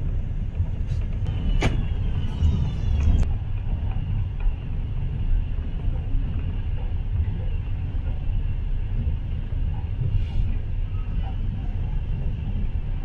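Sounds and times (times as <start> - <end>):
train rumbling: 0.0 - 13.0
faint high whine: 1.3 - 3.4.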